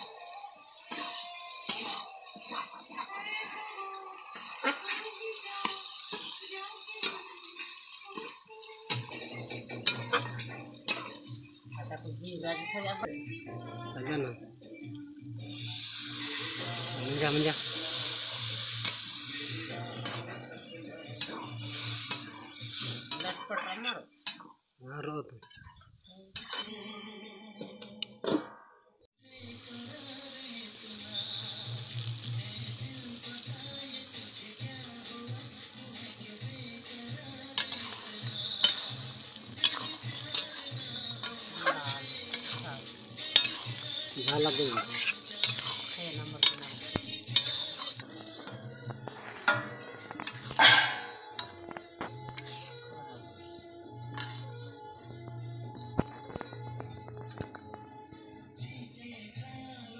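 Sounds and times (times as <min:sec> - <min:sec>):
simmering curry hissing: 0:00.0 - 0:24.8, 0:29.5 - 0:55.2
masala sizzling in pan: 0:00.0 - 0:24.9, 0:29.4 - 0:56.2
spatula scraping metal pan: 0:00.8 - 0:03.6, 0:04.3 - 0:06.4, 0:07.0 - 0:12.7, 0:20.0 - 0:24.6, 0:37.6 - 0:39.0, 0:39.6 - 0:42.6, 0:43.2 - 0:48.5, 0:49.4 - 0:51.6.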